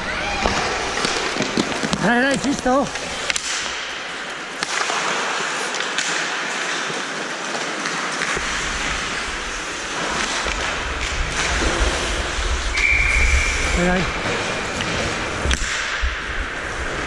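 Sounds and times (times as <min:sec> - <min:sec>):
skate blades scraping ice: 0:00.2 - 0:17.0
stick and puck clicks: 0:00.4 - 0:11.9, 0:14.7 - 0:16.0.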